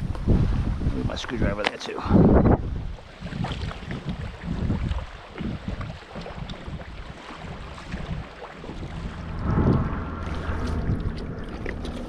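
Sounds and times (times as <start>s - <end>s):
wind buffeting microphone: 0.0s - 12.0s
paddle splashing in water: 2.8s - 9.2s.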